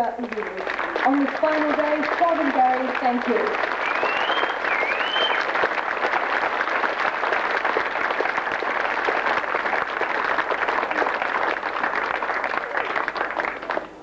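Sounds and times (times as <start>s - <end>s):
crowd applauding: 0.0s - 14.0s
gliding whistle: 3.8s - 5.5s.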